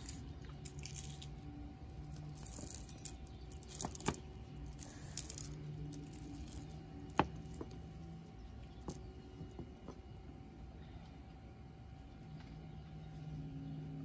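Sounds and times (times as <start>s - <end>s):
necklace chain clinking: 0.0s - 10.0s.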